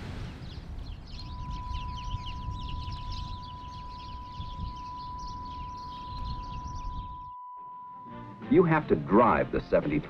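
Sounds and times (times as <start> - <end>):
birds chirping: 0.0 - 7.4.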